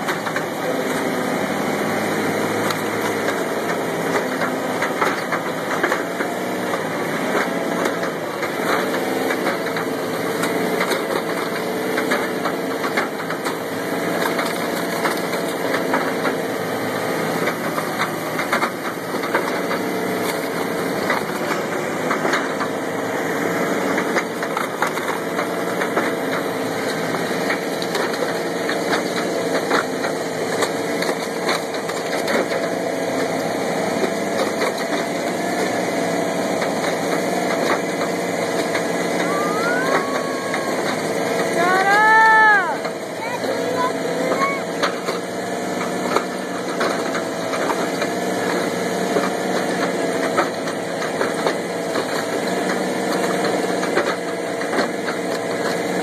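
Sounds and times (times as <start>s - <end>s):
engine running: 0.0s - 56.0s.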